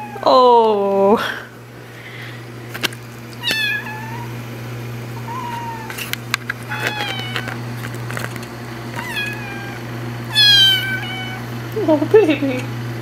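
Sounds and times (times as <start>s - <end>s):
steady low hum: 0.0s - 13.0s
kitten meowing: 3.4s - 4.3s, 5.2s - 6.0s, 6.7s - 7.5s, 9.0s - 11.5s.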